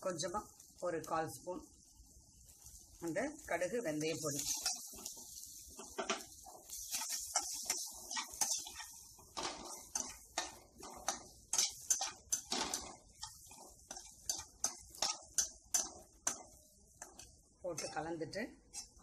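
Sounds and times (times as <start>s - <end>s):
metal spatula scraping steel pan: 4.2s - 18.0s, 18.7s - 19.0s.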